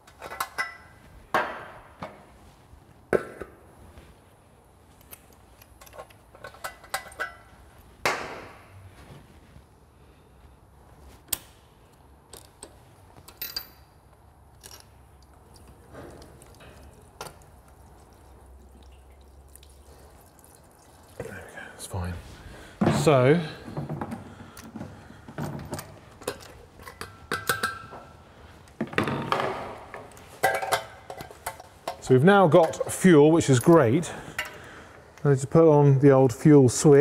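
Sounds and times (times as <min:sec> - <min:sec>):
tools and metal parts clicking: 0:00.0 - 0:00.9, 0:05.0 - 0:07.5, 0:12.3 - 0:15.7.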